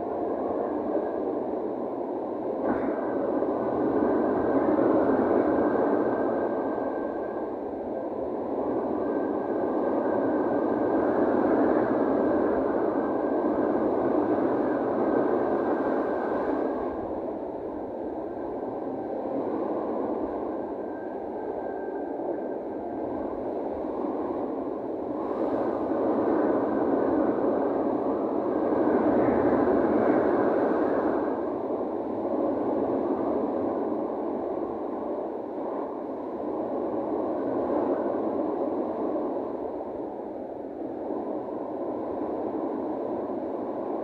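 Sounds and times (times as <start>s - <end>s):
wind rushing over microphone: 0.0s - 44.0s.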